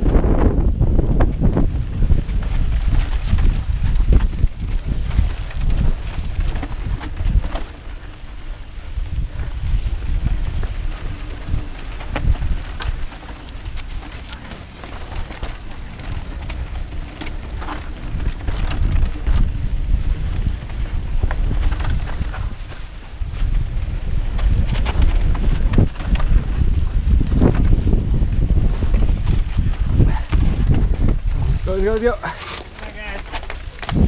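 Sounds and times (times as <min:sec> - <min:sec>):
bike rattling and clicking: 0:00.0 - 0:34.0
tyres crunching over dirt: 0:00.0 - 0:34.0
wind buffeting microphone: 0:00.0 - 0:34.0.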